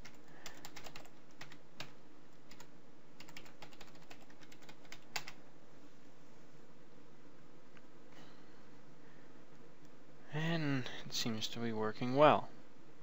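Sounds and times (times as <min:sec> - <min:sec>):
typing on keyboard: 0:00.0 - 0:05.4.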